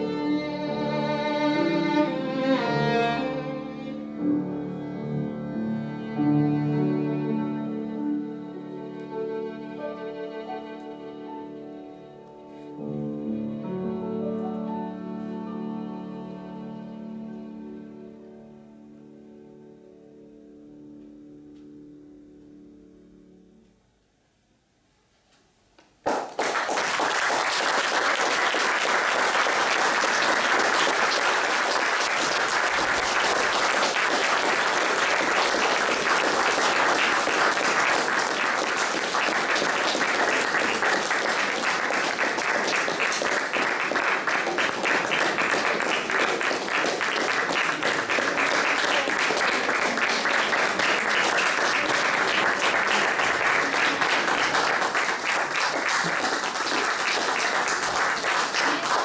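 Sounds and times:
audience applauding: 26.0s - 59.0s.

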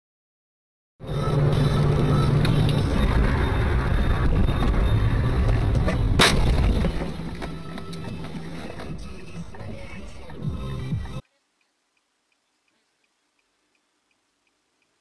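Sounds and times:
road and engine rumble: 1.0s - 11.2s.

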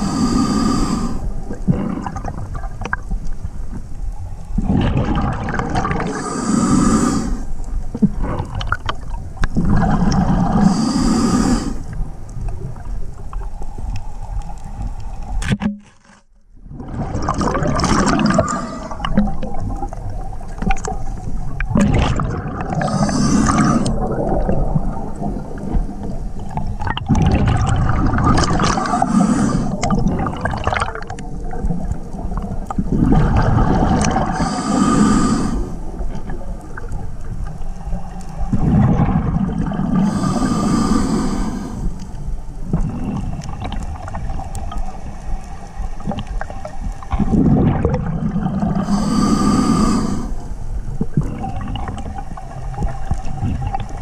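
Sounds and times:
regulator hissing inhalations: 0.0s - 1.3s, 6.1s - 7.5s, 10.6s - 11.9s, 22.8s - 23.9s, 28.8s - 29.8s, 34.3s - 35.8s, 40.0s - 42.1s, 48.8s - 50.5s
gurgling exhaled bubbles: 0.0s - 3.8s, 4.5s - 13.7s, 16.6s - 54.0s.

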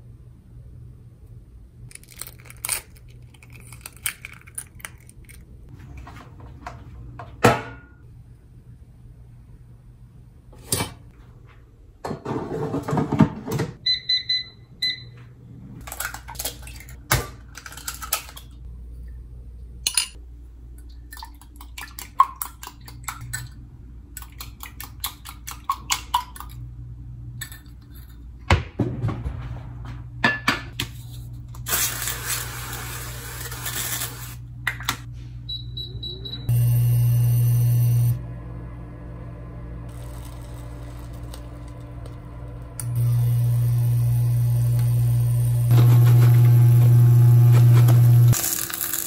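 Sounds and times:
electronic appliance beeps: 13.8s - 15.3s, 35.4s - 38.2s.

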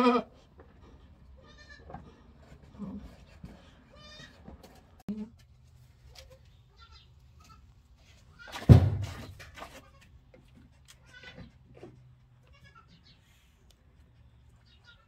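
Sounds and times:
goat straining cry: 0.0s - 0.3s.

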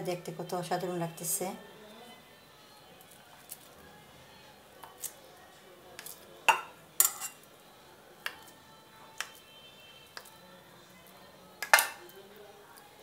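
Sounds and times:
kitchenware clicks and taps: 6.0s - 7.4s, 11.6s - 12.1s.

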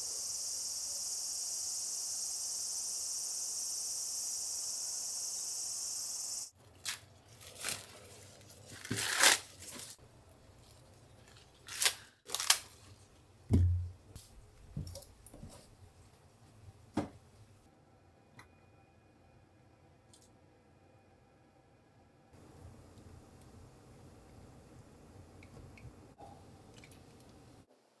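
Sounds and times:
insects chirring: 0.0s - 6.5s
corn husks ripping: 6.6s - 10.0s, 11.2s - 13.1s.

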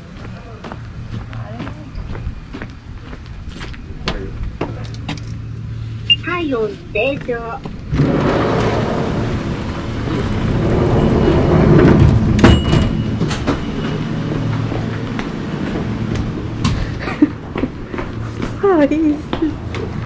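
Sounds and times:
wooden sliding door rumbling: 7.6s - 17.0s.

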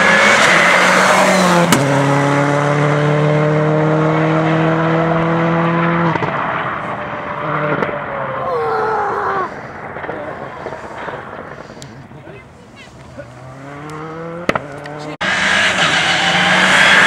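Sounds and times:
rally car engine under throttle: 0.0s - 8.4s, 13.1s - 17.0s.

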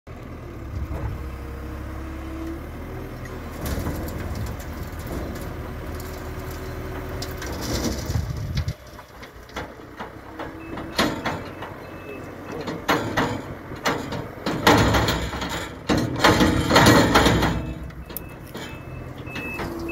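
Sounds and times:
diesel engine under load: 0.1s - 19.9s
knocks: 12.8s - 17.8s.

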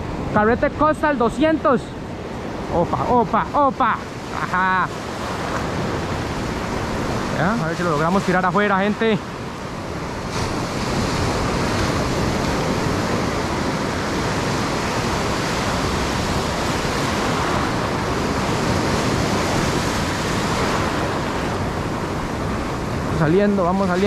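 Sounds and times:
ocean surf breaking: 0.0s - 24.0s.

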